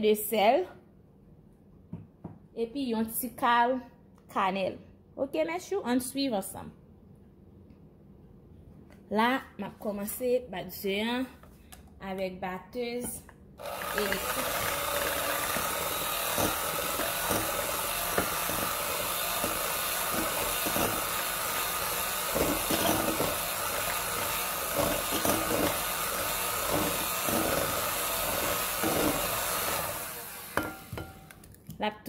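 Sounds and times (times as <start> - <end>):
electric hand mixer running: 13.6 - 31.3.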